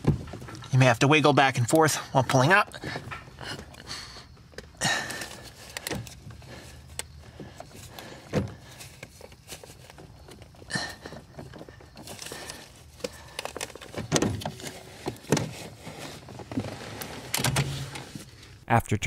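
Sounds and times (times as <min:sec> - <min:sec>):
metal clicks and rustling: 0:04.4 - 0:18.3.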